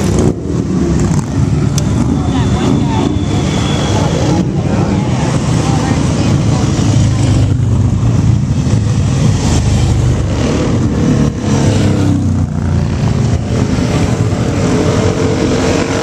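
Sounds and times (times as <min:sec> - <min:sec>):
motorcycles riding past: 0:00.0 - 0:16.0.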